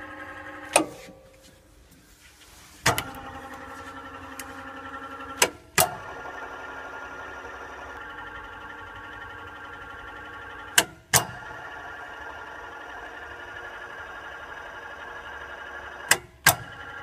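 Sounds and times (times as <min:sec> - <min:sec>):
electric lift drive whining: 0:00.0 - 0:01.2, 0:02.8 - 0:17.0.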